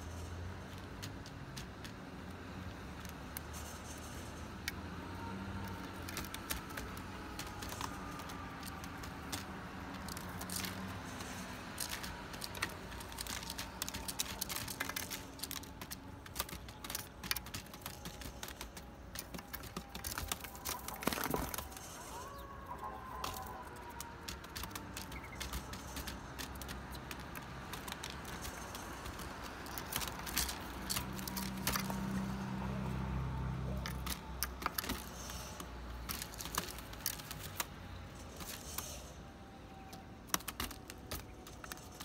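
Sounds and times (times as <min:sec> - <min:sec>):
birds pecking on a plate: 0:00.0 - 0:42.0
aluminium foil crinkling: 0:05.5 - 0:32.4, 0:33.8 - 0:39.1.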